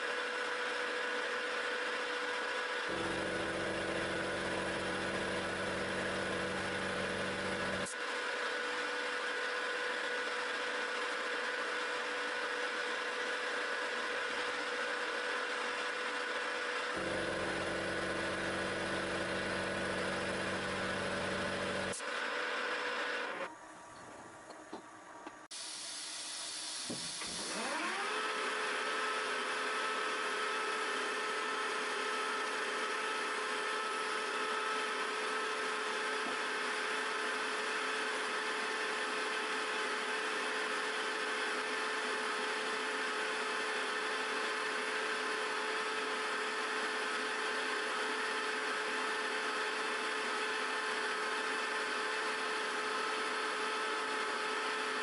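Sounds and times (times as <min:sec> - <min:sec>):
milling machine spindle whine: 0:00.2 - 0:25.3.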